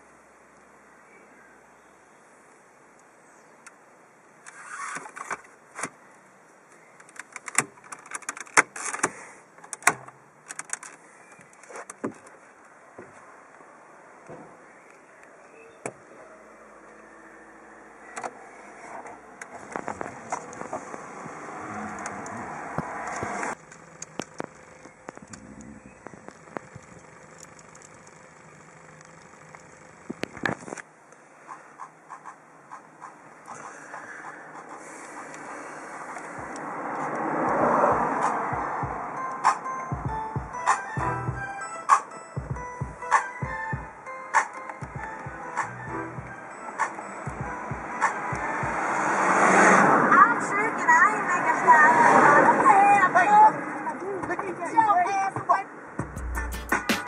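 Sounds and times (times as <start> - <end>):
plastic clicks and rattles: 7.0 - 12.3
car cabin hum: 19.7 - 30.6
hand tapping tablet: 56.0 - 57.0.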